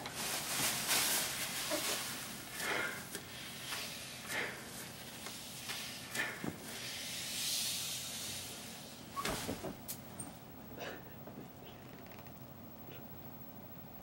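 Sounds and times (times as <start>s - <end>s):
plastic bag crinkling: 0.0s - 2.6s
person breathing hard: 2.5s - 4.9s, 6.0s - 8.6s.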